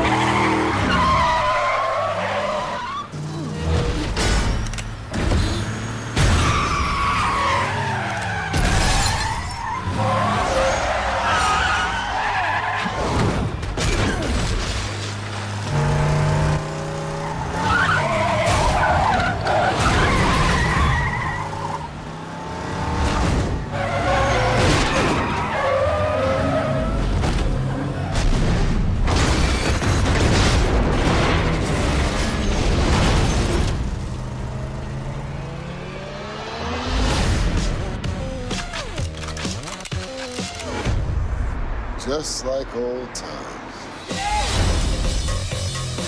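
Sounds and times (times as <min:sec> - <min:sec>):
tyres skidding: 0:00.0 - 0:30.2
car engines revving: 0:00.0 - 0:41.0.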